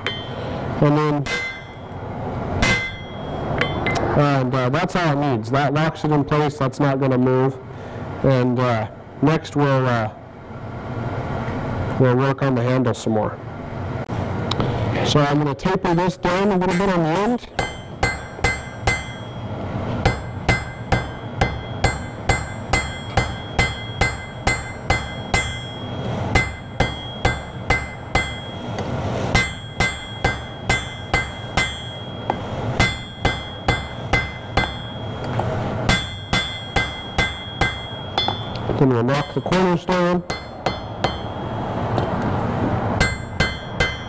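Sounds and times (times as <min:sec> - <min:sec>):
hammer striking iron on anvil: 0:00.0 - 0:04.1, 0:16.3 - 0:42.3, 0:43.0 - 0:44.0.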